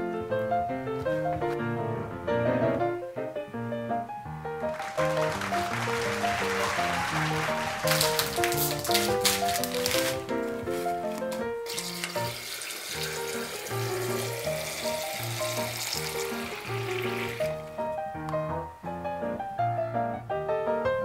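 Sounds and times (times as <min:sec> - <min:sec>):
background music: 0:00.0 - 0:21.0
tap water running into glass: 0:11.7 - 0:17.7.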